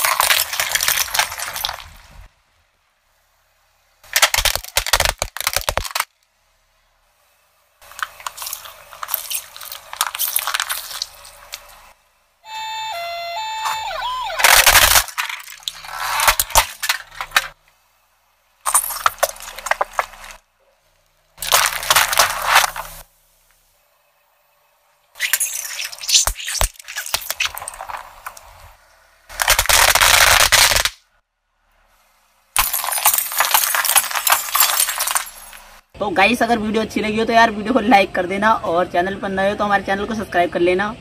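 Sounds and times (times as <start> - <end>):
soda cans crumpling: 0.0 - 2.0, 7.8 - 11.7, 21.4 - 23.0, 29.3 - 31.0
plastic toys crunching under tyre: 0.0 - 2.3, 4.0 - 6.3, 7.8 - 12.0, 13.6 - 17.6, 18.6 - 20.5, 21.3 - 23.1, 25.2 - 31.0, 32.6 - 35.8
toy electronic beeping tune: 12.4 - 14.5.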